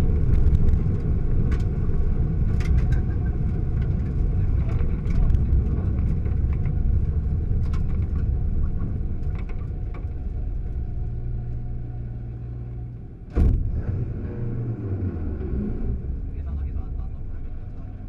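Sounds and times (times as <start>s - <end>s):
car engine rumble: 0.0s - 18.0s
loud thump: 13.3s - 14.0s.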